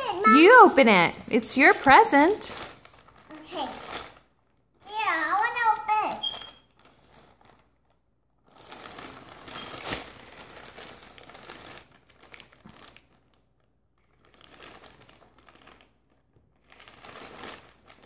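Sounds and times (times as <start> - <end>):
plastic bag crinkling: 0.0 - 18.0.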